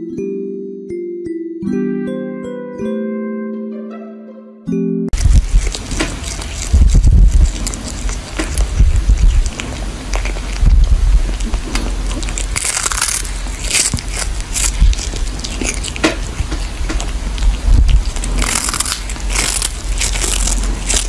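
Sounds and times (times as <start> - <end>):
cat crunching dried fish: 5.2 - 21.0.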